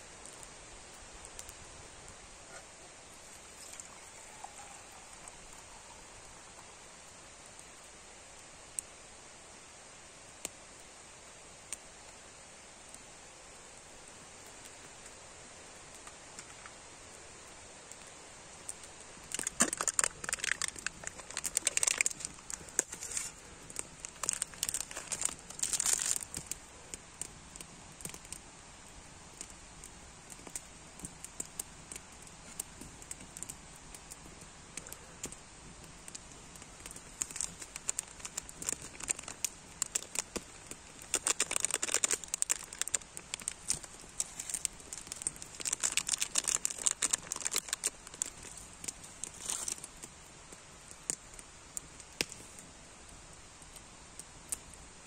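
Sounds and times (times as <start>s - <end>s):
packaging crinkling and tearing: 19.2s - 26.6s, 36.1s - 50.0s.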